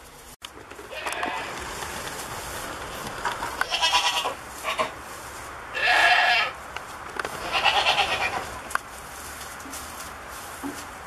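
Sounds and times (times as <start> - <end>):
goat bleating: 0.9 - 1.6, 3.6 - 5.0, 5.7 - 6.6, 7.4 - 8.6.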